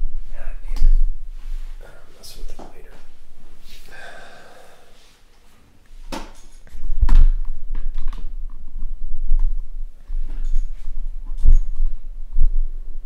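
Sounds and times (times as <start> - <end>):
heavy low thuds: 0.0 - 3.7, 6.8 - 13.0.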